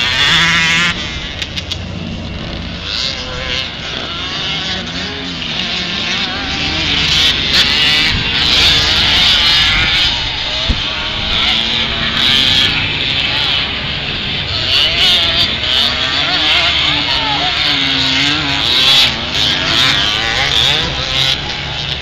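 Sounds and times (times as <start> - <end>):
motorcycle engines revving: 0.0 - 22.0.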